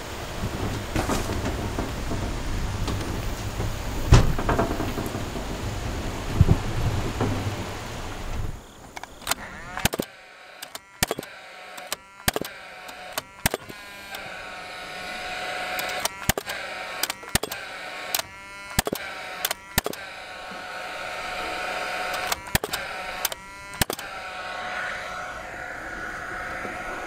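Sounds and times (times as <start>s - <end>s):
tool fan whirring: 0.0s - 27.0s
nail gun shots: 9.0s - 24.6s.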